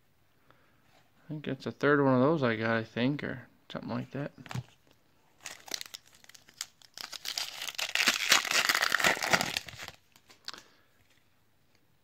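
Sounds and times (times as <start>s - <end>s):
foil wrapper crinkling and tearing: 5.4s - 10.6s.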